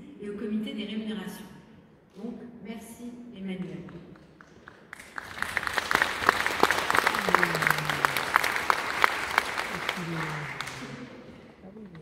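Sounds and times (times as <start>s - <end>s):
audience applauding: 4.4s - 11.3s.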